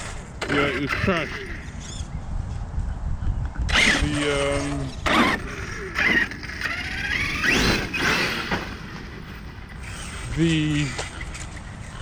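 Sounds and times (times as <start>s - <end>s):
rc truck motor whining: 0.0s - 2.1s, 3.7s - 12.0s.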